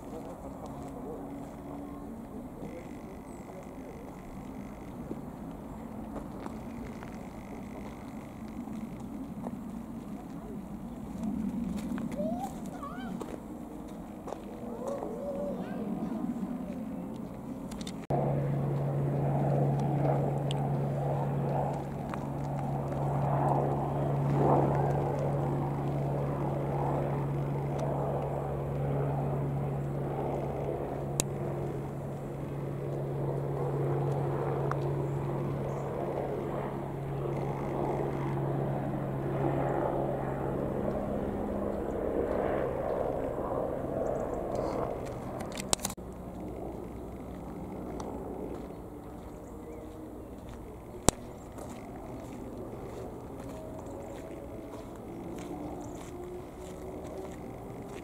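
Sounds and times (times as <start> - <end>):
aircraft engines droning: 0.0 - 58.0.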